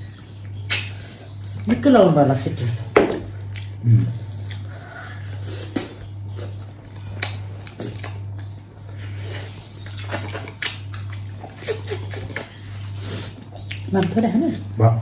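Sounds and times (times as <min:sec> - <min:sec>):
lip smacks: 0:00.6 - 0:01.2, 0:03.5 - 0:03.8, 0:09.3 - 0:14.2
wet chewing: 0:02.8 - 0:14.8.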